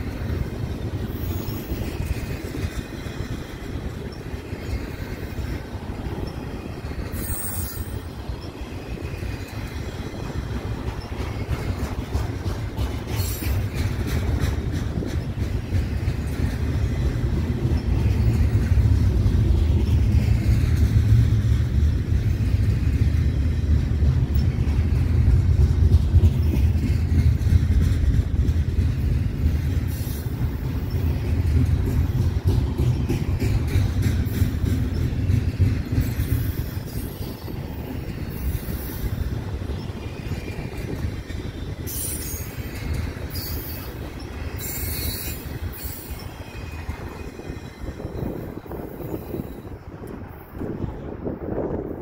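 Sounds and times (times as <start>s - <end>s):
train wheels rumbling on rail: 0.0s - 52.0s.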